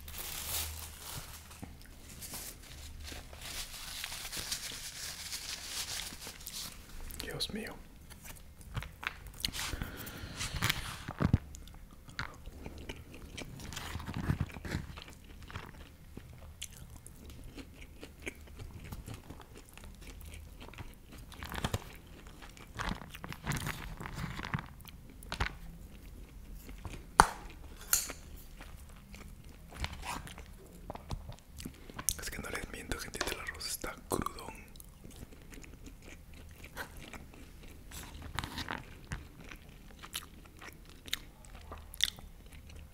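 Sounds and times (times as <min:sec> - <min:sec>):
chewing and biting food: 0:10.7 - 0:27.6, 0:34.8 - 0:42.9.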